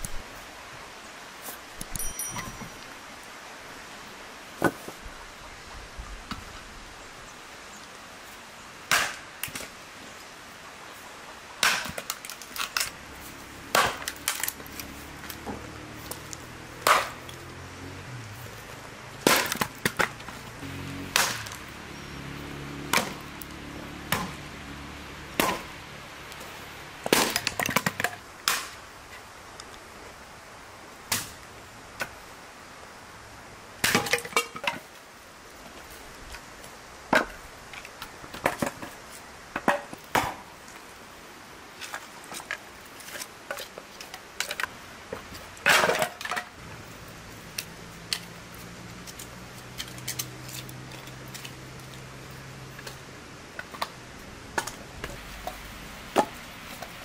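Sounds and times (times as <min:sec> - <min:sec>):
utensils knocking and clattering: 0:01.9 - 0:02.8.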